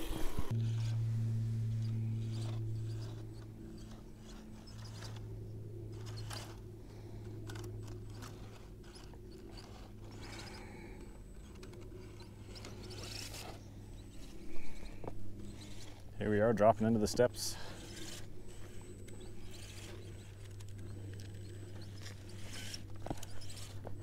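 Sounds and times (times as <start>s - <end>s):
electric motor and gears whirring: 0.0s - 24.0s
tyres clicking and scraping on rock: 16.8s - 24.0s.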